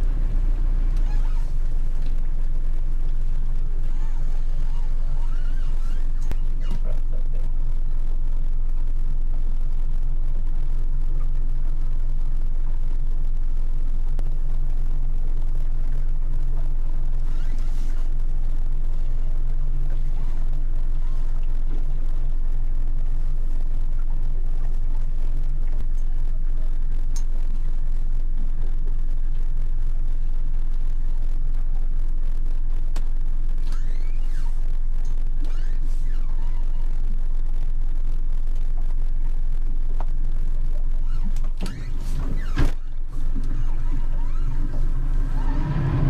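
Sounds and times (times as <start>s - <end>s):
boat engine running: 0.0s - 8.2s, 41.1s - 46.0s.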